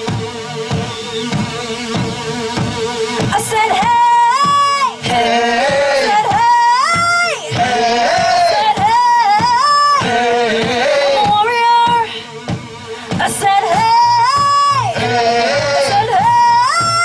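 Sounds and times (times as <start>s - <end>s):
lead melody with sliding notes: 0.0s - 5.0s
live band playing: 0.0s - 17.0s
steady drum beat: 0.0s - 17.0s.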